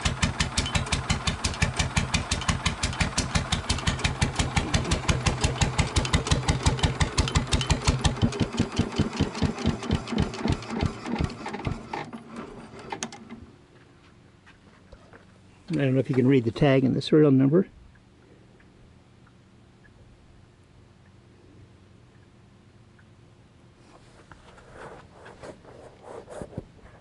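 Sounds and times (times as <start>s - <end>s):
diesel engine running: 0.0s - 12.9s.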